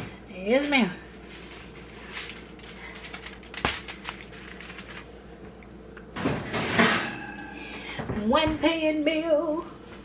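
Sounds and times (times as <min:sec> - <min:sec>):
foil pan clicking and rustling: 0:02.1 - 0:05.1.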